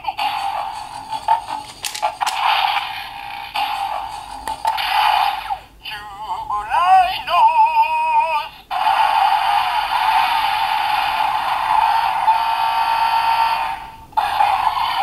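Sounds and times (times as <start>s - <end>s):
long steady electronic tone: 11.1s - 14.1s.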